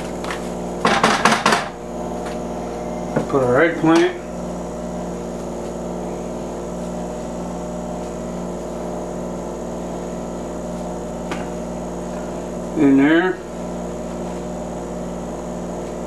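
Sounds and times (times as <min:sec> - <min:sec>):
steady motor hum: 0:00.0 - 0:16.0
faint high whine: 0:01.9 - 0:10.8.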